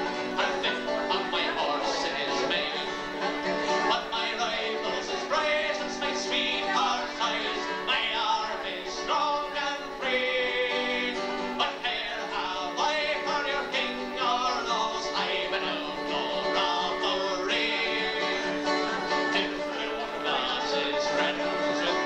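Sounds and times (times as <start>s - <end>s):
man singing folk song: 0.0s - 22.0s
stringed instrument: 0.0s - 22.0s
strummed acoustic guitar: 0.0s - 22.0s.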